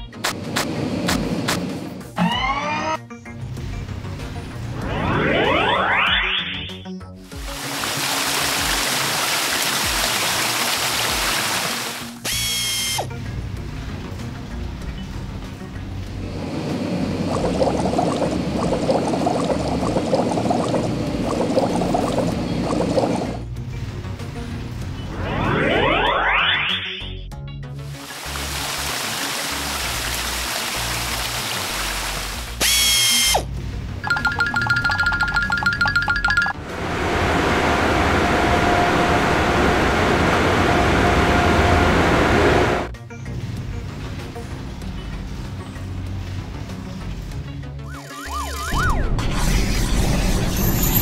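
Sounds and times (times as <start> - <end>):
background music: 0.0 - 37.0, 42.8 - 50.9
whistling tone sweeping up: 4.8 - 6.6, 25.0 - 27.1, 36.8 - 42.9
cartoon water jets spraying: 7.3 - 13.1, 16.3 - 23.4, 27.8 - 33.5, 47.8 - 49.2.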